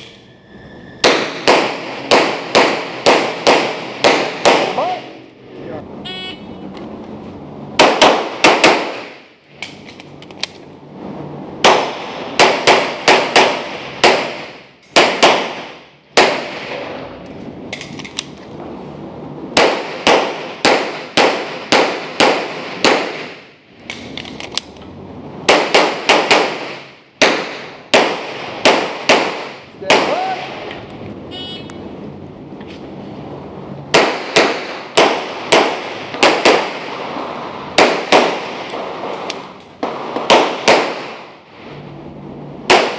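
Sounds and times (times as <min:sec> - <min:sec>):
rapid pistol shots echoing indoors: 0:01.0 - 0:04.9, 0:07.8 - 0:09.2, 0:11.6 - 0:16.8, 0:19.6 - 0:23.4, 0:25.4 - 0:30.3, 0:33.9 - 0:38.8, 0:39.8 - 0:41.3.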